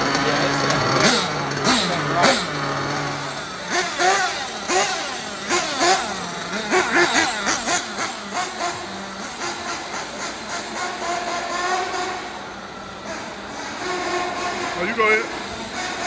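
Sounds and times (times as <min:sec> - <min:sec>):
nitro engine revving: 0:00.0 - 0:16.0.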